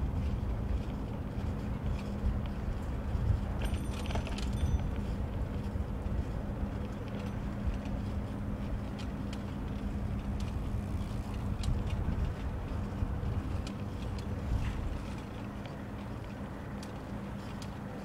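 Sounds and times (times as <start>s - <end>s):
wind on microphone: 0.0s - 6.8s, 9.6s - 15.6s
bicycle tyres rumbling on pavement: 0.0s - 18.0s
steady low hum: 0.0s - 18.0s
metallic rattle and jingle: 3.1s - 5.2s.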